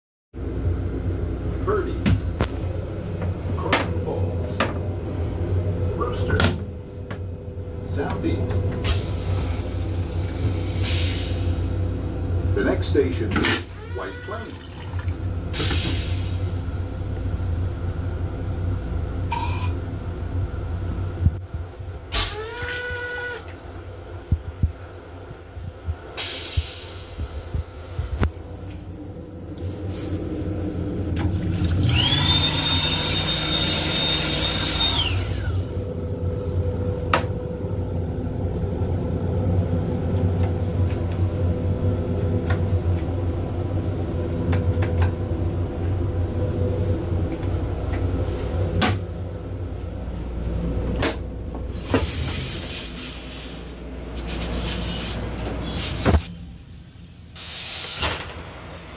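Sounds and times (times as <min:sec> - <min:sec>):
train rumbling: 0:00.4 - 0:22.2, 0:23.5 - 0:32.2, 0:35.0 - 0:58.9
hand dryer blowing: 0:31.2 - 0:35.7.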